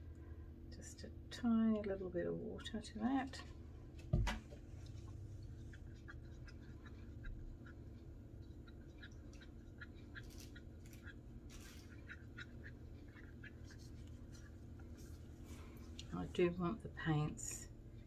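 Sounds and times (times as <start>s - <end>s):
steady low hum: 0.0s - 18.0s
stick stirring paint in cup: 4.2s - 16.3s.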